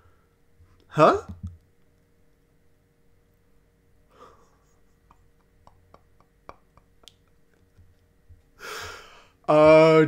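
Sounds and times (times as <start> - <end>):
soft breath: 8.6 - 9.4.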